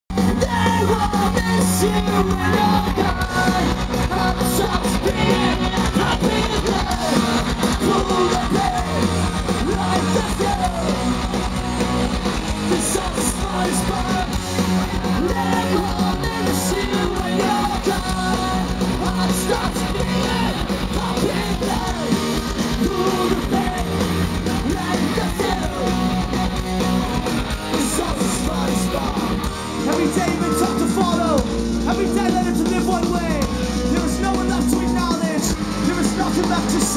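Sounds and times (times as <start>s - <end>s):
punk rock band playing live: 0.1s - 36.9s
shouted sung vocals: 0.2s - 26.6s.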